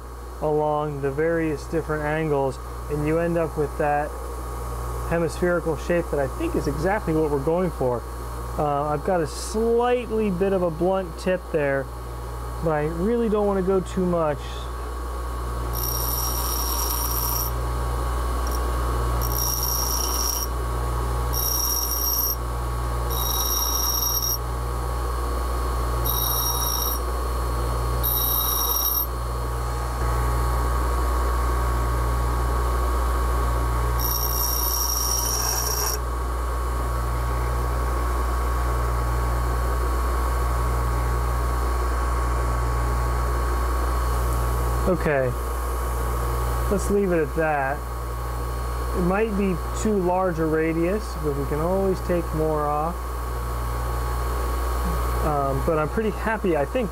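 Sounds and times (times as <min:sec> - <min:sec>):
bench grinder humming: 0:15.4 - 0:30.6, 0:33.2 - 0:36.2
high-pitched metal grinding bursts: 0:15.7 - 0:17.6, 0:18.4 - 0:20.5, 0:21.3 - 0:22.4, 0:23.1 - 0:24.4, 0:26.0 - 0:27.0, 0:28.0 - 0:29.1, 0:34.0 - 0:36.0.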